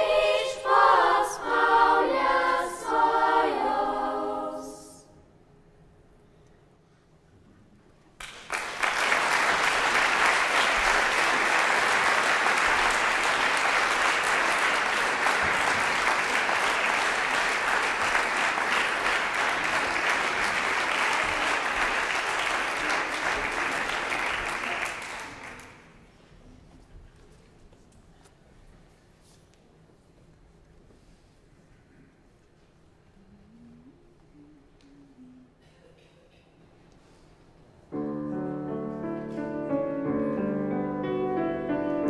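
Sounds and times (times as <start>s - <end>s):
audience applauding: 8.2s - 26.0s.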